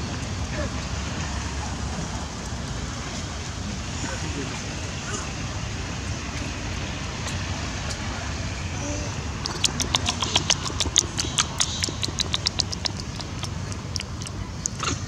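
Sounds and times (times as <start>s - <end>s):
low background rumble: 0.0s - 15.0s
rapid sharp clicks: 9.4s - 15.0s.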